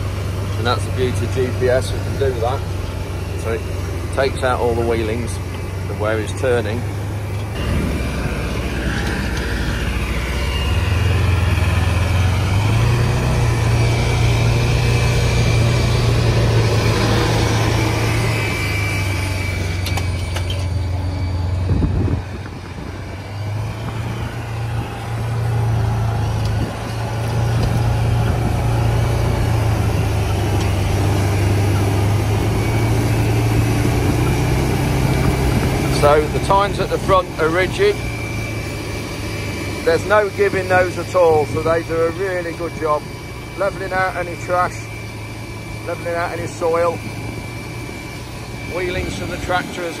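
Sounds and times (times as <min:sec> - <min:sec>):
tractor engine under load: 0:00.0 - 0:50.0.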